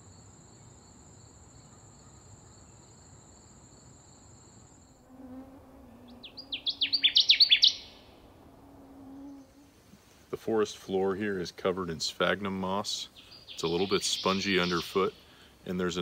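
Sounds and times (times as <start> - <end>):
high insect trill: 0.1 - 10.0, 12.6 - 16.0
warbler song: 5.7 - 9.7, 10.8 - 16.0.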